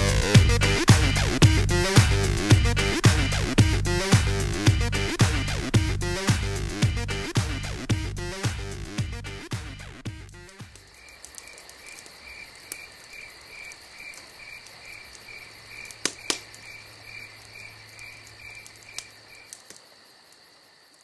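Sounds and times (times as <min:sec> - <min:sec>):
campfire log popping: 0:10.0 - 0:21.0
cricket chirping: 0:10.4 - 0:21.0
steady high insect trill: 0:10.6 - 0:21.0.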